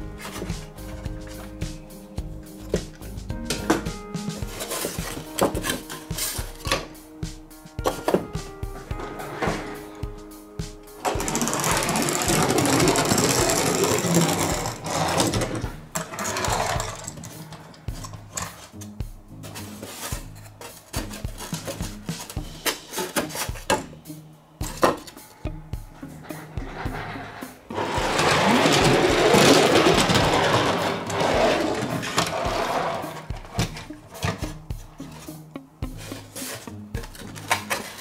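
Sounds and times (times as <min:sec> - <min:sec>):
toy vehicle wheels whirring: 0:11.0 - 0:17.8, 0:26.4 - 0:33.4.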